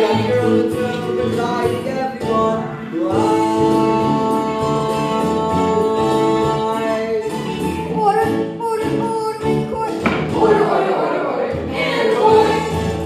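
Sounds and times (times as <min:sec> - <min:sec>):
instrumental accompaniment: 0:00.0 - 0:13.0
musical theatre singing: 0:00.0 - 0:13.0.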